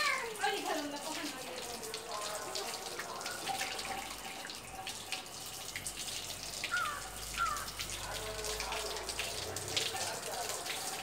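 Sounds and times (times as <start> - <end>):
water splashing into a bucket: 0.0 - 11.0.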